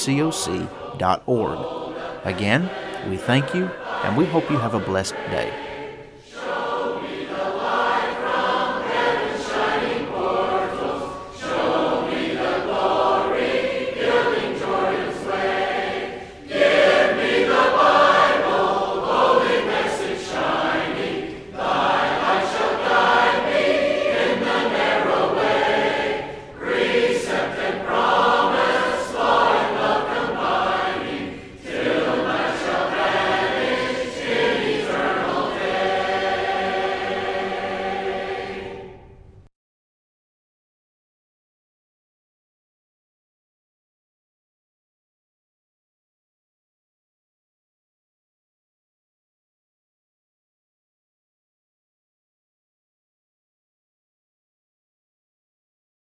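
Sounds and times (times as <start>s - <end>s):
congregation singing a hymn: 0.0s - 39.3s.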